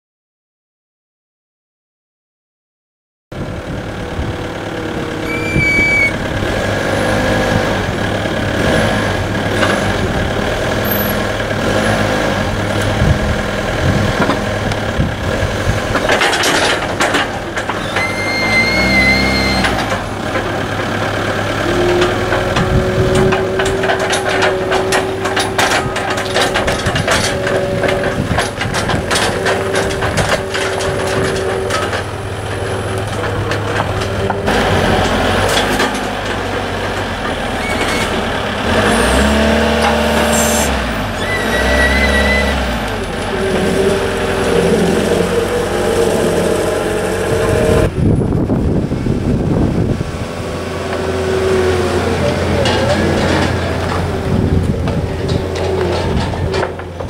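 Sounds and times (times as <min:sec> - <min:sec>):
steady whine: 0:03.4 - 0:08.5
forklift engine running: 0:03.4 - 0:57.0
short beeping: 0:05.2 - 0:06.2, 0:17.8 - 0:19.8
metallic clanks and rattles: 0:13.8 - 0:18.5, 0:19.6 - 0:38.3, 0:52.2 - 0:57.0.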